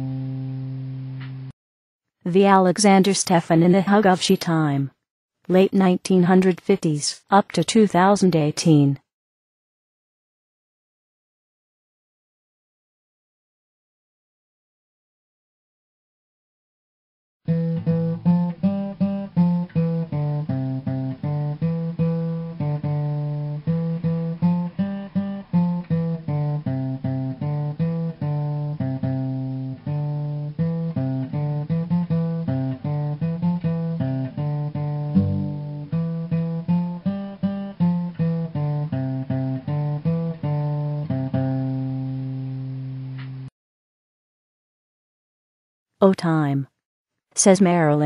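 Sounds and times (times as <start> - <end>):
plucked guitar music: 0.0 - 1.5, 17.5 - 43.5.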